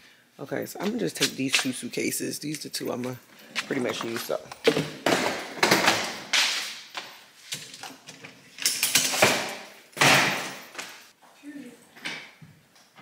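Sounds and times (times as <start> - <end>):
suitcases clicking and scraping: 3.1 - 6.2.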